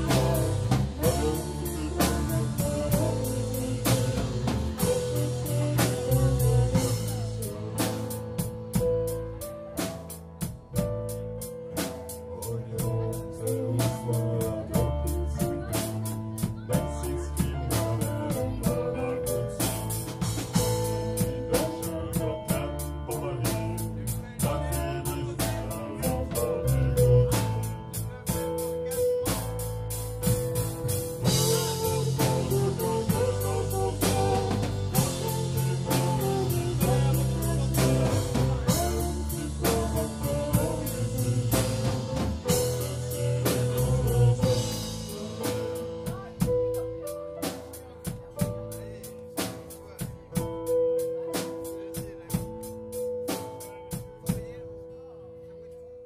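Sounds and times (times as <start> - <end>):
drums: 0.0 - 54.8.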